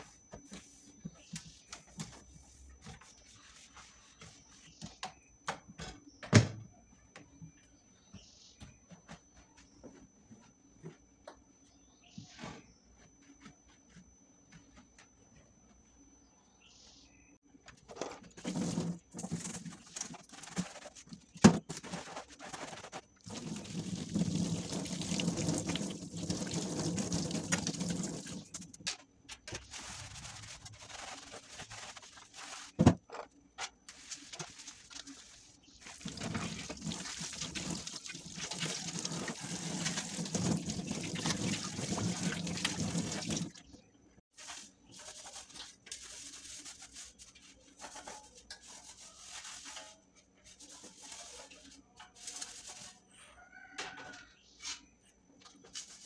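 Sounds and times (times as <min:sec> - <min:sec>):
sponge washing baskets: 0:00.0 - 0:04.8, 0:17.8 - 0:33.0, 0:33.6 - 0:53.1, 0:55.6 - 0:56.0.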